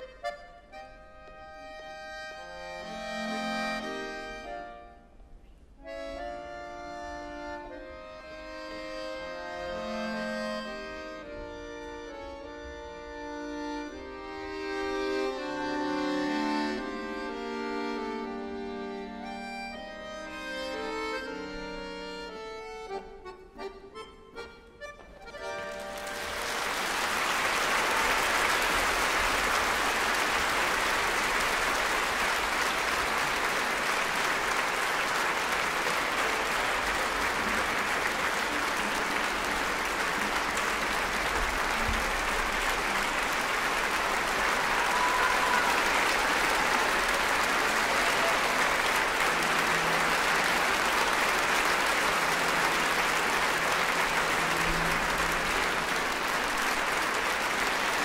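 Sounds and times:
music: 0.0s - 31.0s, 31.7s - 58.0s
audience applauding: 25.3s - 58.0s.

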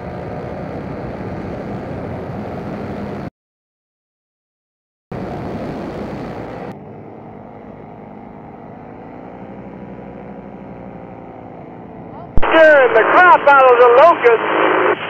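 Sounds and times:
paramotor engine running: 0.0s - 3.3s, 5.2s - 13.7s
loud rough noise: 5.1s - 15.0s.

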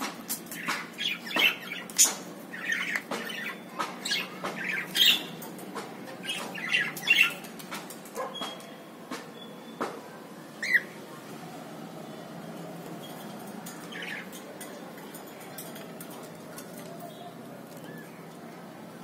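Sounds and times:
cockatiels chirping and squawking: 0.3s - 5.4s, 6.2s - 7.5s, 10.6s - 11.0s, 13.0s - 14.4s.

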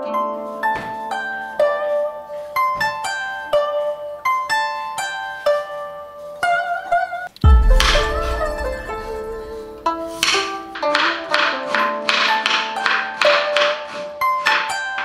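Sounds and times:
plucked-string melody: 0.0s - 15.0s
music with deep bass: 7.4s - 9.9s.

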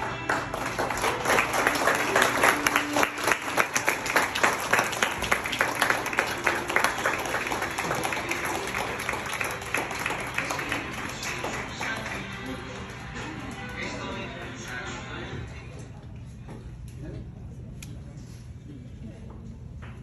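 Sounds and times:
crowd applauding: 0.0s - 14.4s.

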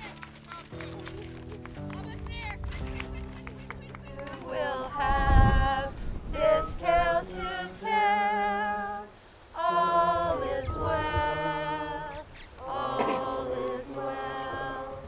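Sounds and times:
person singing unaccompanied: 4.2s - 15.0s.

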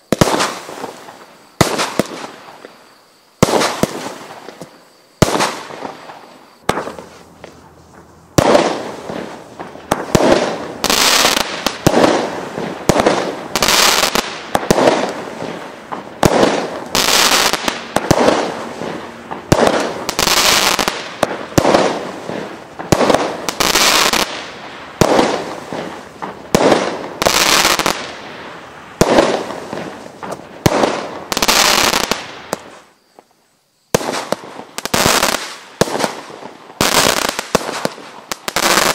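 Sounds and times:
firework bangs with echo: 0.1s - 2.8s, 3.4s - 7.6s, 8.4s - 32.8s.

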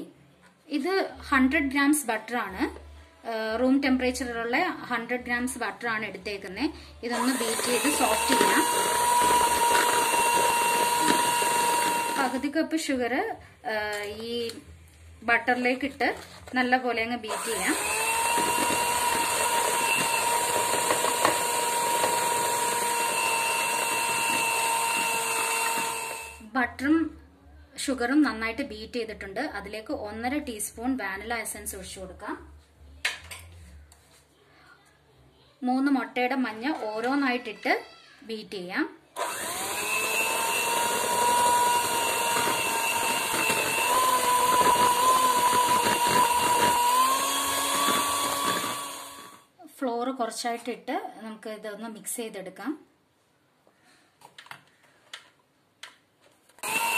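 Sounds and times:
electric hand mixer whine: 7.1s - 12.5s, 17.3s - 26.4s, 39.2s - 49.5s, 56.6s - 56.9s.

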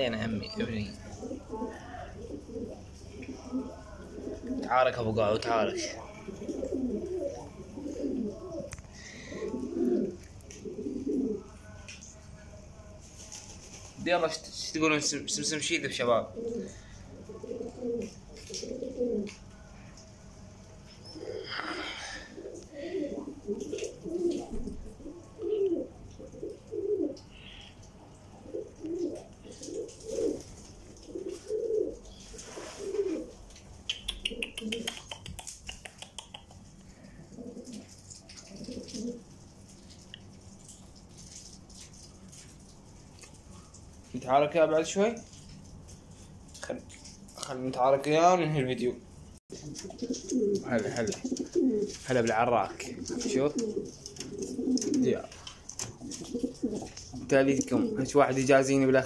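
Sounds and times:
pigeons cooing: 0.0s - 11.8s, 15.9s - 19.7s, 21.0s - 42.8s, 49.5s - 58.2s.

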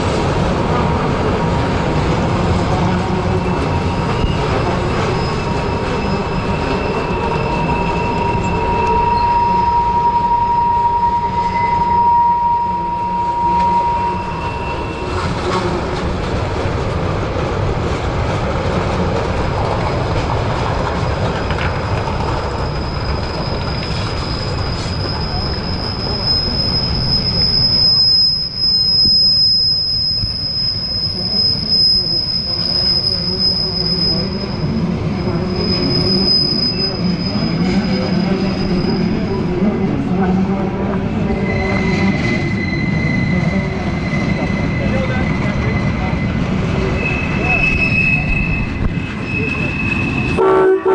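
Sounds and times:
freight train cars rumbling: 0.0s - 50.9s
wheel flange squeal: 3.3s - 15.4s, 21.4s - 39.4s, 41.2s - 50.4s.

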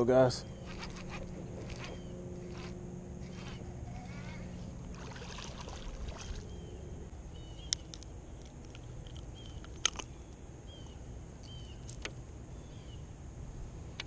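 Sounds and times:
small bird chirping: 0.4s - 3.6s, 6.2s - 8.5s, 9.2s - 13.1s.

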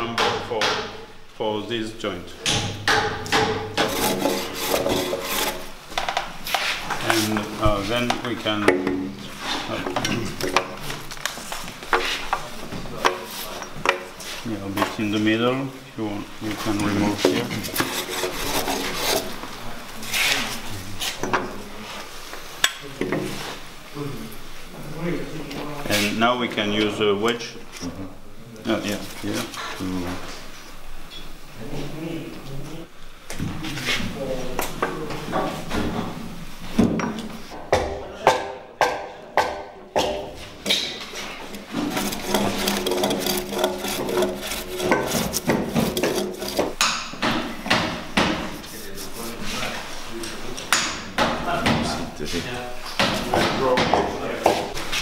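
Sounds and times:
wooden wedges knocking on timber: 2.5s - 5.2s, 36.8s - 41.0s, 41.7s - 48.5s, 53.0s - 54.8s
hand plane cutting wood: 3.8s - 5.7s, 17.3s - 19.4s, 41.6s - 46.8s.

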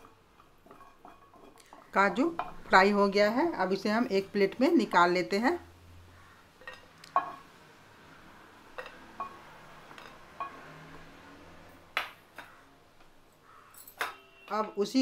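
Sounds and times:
spatula clinking on pan and plate: 0.0s - 2.6s, 8.7s - 10.9s.

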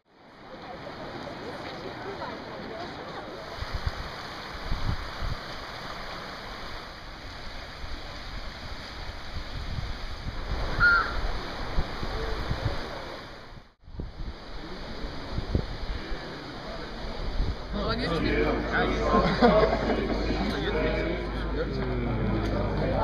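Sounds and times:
mountain stream rushing: 0.1s - 23.0s
wind buffeting microphone: 3.4s - 5.8s, 7.1s - 18.0s.

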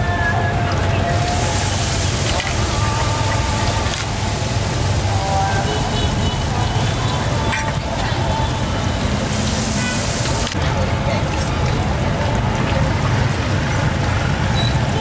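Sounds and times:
distant voices: 0.0s - 15.0s
low rumble of traffic: 0.0s - 15.0s
hiss: 1.1s - 7.0s, 9.1s - 10.6s.

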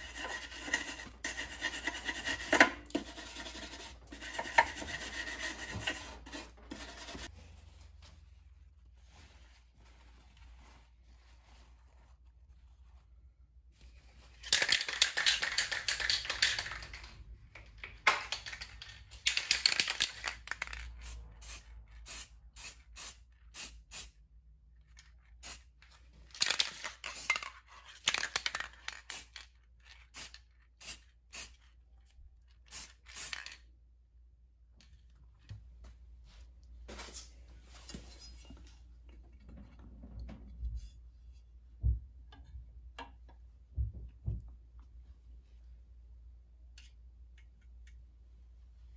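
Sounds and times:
paper towels rustling and crumpling: 7.2s - 14.4s.

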